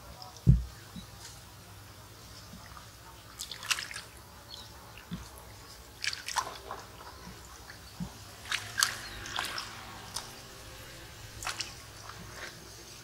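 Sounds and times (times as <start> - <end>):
hands splashing in stream water: 3.4 - 4.2, 6.0 - 6.9, 8.4 - 12.5.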